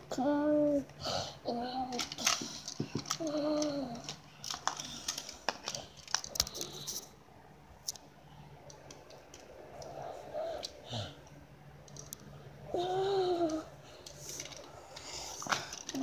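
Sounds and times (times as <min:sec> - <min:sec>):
plastic toy clicks and rustles: 0:01.8 - 0:07.0, 0:13.4 - 0:16.0.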